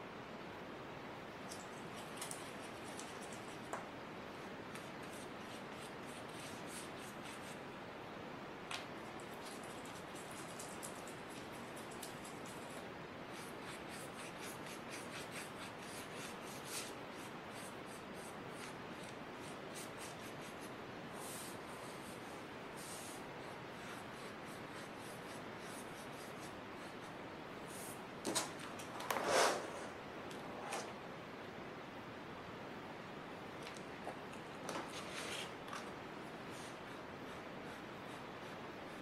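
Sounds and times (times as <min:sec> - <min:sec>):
steady hiss: 0:00.0 - 0:39.0
light scratching and rubbing: 0:28.9 - 0:30.9
paper scraping and rustling: 0:34.7 - 0:35.9.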